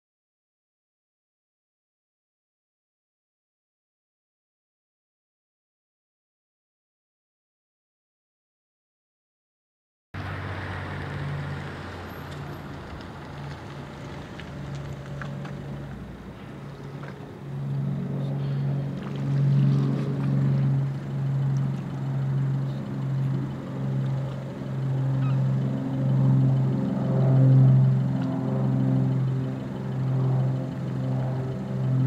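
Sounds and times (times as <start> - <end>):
ship engines humming: 10.2 - 32.0.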